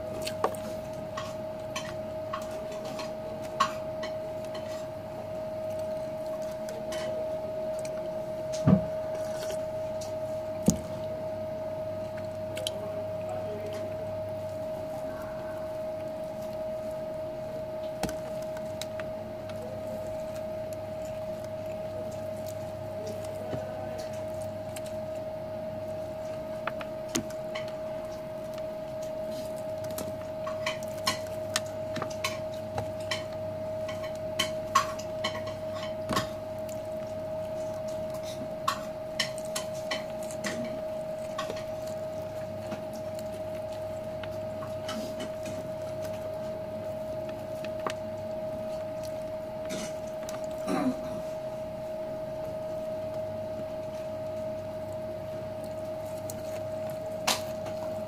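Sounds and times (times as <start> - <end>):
steady humming tone: 0.0 - 58.0.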